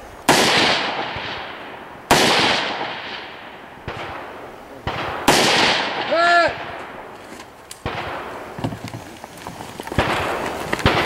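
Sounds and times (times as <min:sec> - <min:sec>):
faint gunshot cracks: 0:00.3 - 0:06.9
loud gunshots with echo: 0:00.3 - 0:07.1, 0:07.8 - 0:08.5, 0:10.0 - 0:11.0.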